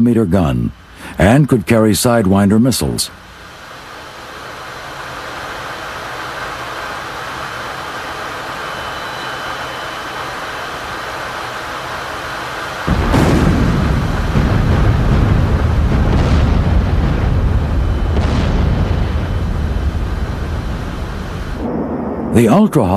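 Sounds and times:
steady rushing noise: 0:00.0 - 0:22.9
bomb explosion with low rumble: 0:12.9 - 0:22.9.

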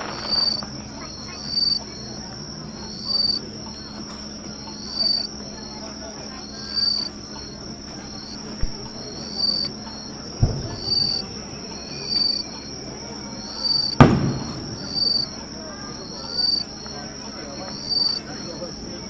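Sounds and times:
firework bang: 0:00.0 - 0:00.8, 0:10.4 - 0:11.4, 0:13.8 - 0:15.4
insects chirping: 0:00.0 - 0:19.0
dull low thud: 0:08.6 - 0:09.0, 0:10.4 - 0:11.1.

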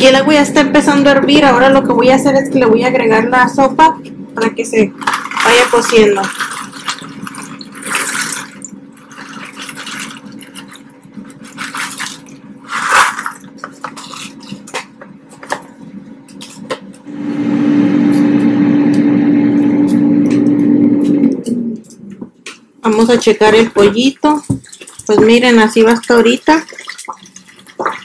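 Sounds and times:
air fryer fan humming: 0:00.0 - 0:26.5
pasta bubbling in boiling water: 0:04.9 - 0:16.8, 0:23.2 - 0:28.0
spoon stirring and splashing: 0:05.0 - 0:15.6, 0:22.9 - 0:28.0.

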